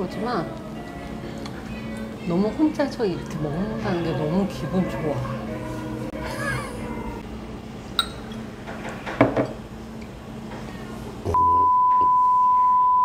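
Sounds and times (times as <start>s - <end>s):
glass clinking: 8.0s - 8.4s
censor bleep: 11.4s - 13.0s.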